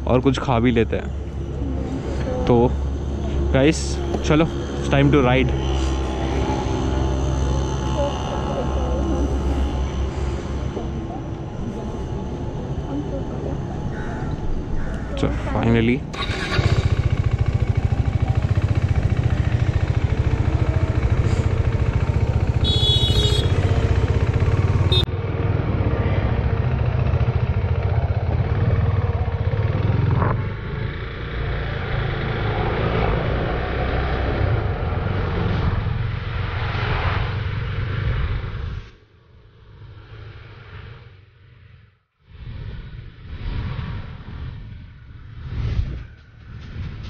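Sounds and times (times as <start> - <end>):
motorcycle engine rumbling: 0.0 - 36.7
wind and road noise: 0.0 - 47.0.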